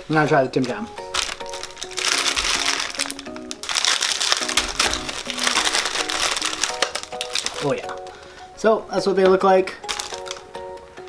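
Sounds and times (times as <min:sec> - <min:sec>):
plastic wrapper crinkling: 0:00.0 - 0:08.5, 0:09.8 - 0:10.6
background music of short notes: 0:00.0 - 0:11.0
wrapper torn open: 0:00.6 - 0:08.2, 0:09.8 - 0:10.5.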